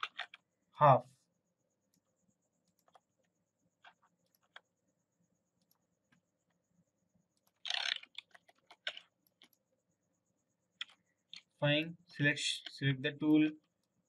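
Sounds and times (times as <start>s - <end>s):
computer mouse clicks: 0.0s - 0.4s, 2.6s - 4.7s, 7.3s - 9.7s, 10.8s - 11.6s.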